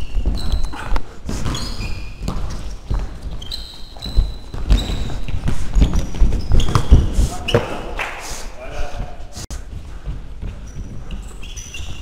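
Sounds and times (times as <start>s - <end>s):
running feet thudding: 0.0s - 7.8s, 8.9s - 12.0s
sports shoes squeaking on floor: 0.0s - 8.0s, 10.4s - 12.0s.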